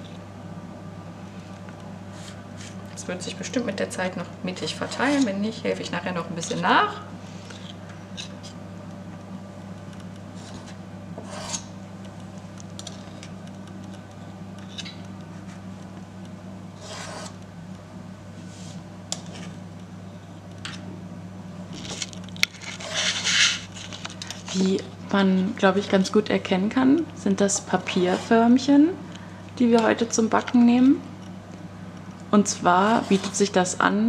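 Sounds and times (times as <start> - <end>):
steady low hum: 0.0 - 34.0
spoons scraping together: 21.8 - 24.6.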